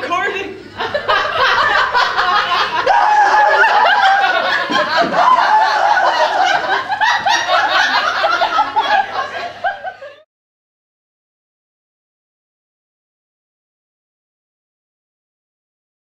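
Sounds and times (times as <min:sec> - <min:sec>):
group of people laughing: 0:00.6 - 0:10.3.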